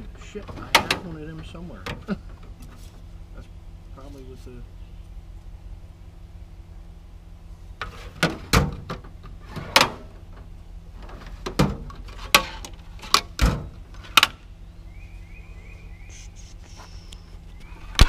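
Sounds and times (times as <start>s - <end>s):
faint high chirps: 14.6s - 18.0s.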